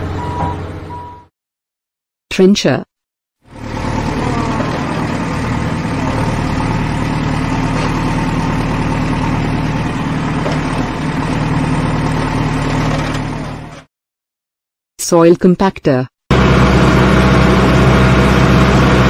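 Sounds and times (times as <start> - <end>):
trencher engine running: 3.5 - 13.9, 16.3 - 19.0.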